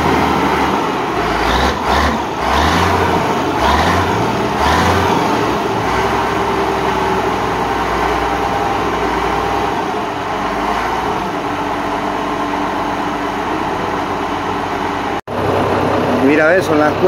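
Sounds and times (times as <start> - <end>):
diesel engine running: 0.0 - 17.0.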